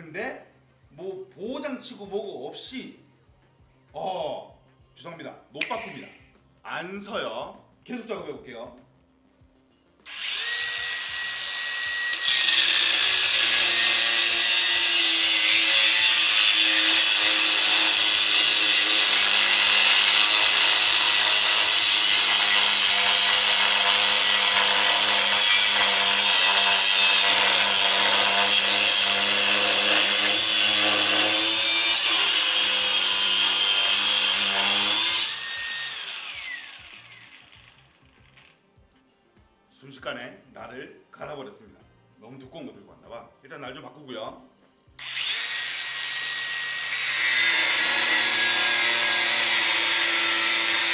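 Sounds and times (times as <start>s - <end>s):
angle grinder cutting steel: 10.1s - 38.5s, 45.0s - 50.9s.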